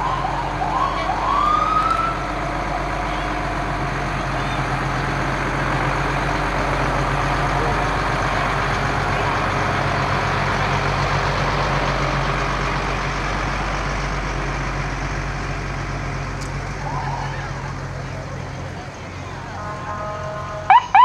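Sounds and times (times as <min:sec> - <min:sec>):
fire engine siren whoops: 0:00.0 - 0:03.5, 0:16.7 - 0:18.4, 0:19.4 - 0:21.0
fire truck engine running: 0:00.0 - 0:21.0.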